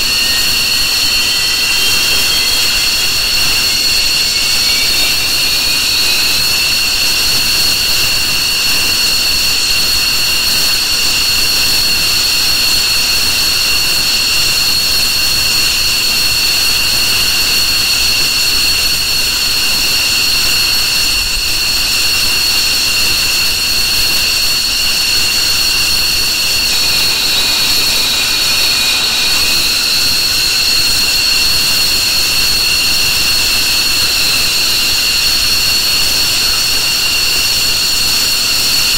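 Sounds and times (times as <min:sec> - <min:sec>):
jet engines whining and roaring: 0:00.0 - 0:09.4, 0:22.6 - 0:38.9.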